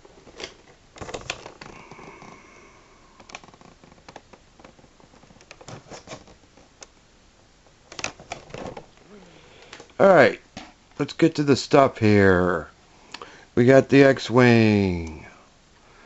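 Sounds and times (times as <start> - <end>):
toy box handled by hand: 3.2 - 6.8.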